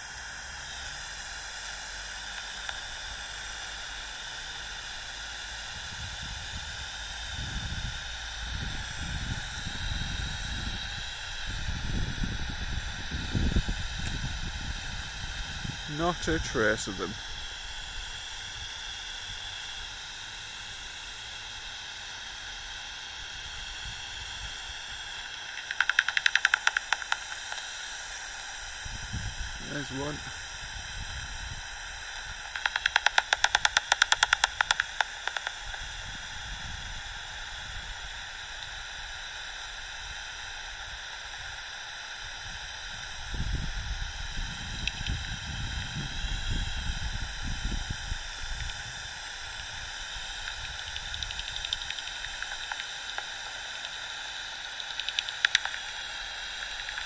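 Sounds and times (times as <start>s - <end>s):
faint steady hum: 0.0s - 57.0s
outdoor background hiss: 0.0s - 57.0s
wind buffeting microphone: 5.7s - 18.2s, 28.8s - 31.7s, 42.4s - 49.9s
sharp clicks of bat calls: 25.2s - 27.7s, 32.2s - 35.8s, 50.4s - 54.0s, 54.6s - 57.0s.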